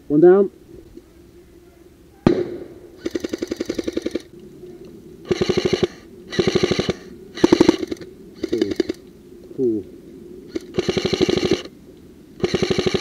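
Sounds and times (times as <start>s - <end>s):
airsoft rifle full-auto bursts: 3.0s - 4.3s, 5.3s - 9.0s, 10.5s - 11.7s, 12.4s - 13.0s.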